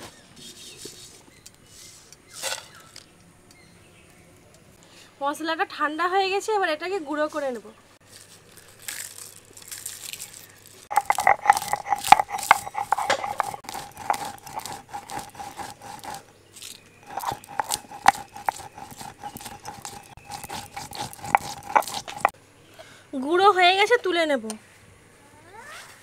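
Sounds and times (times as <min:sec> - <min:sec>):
stone roller crushing spices: 0:08.9 - 0:22.4.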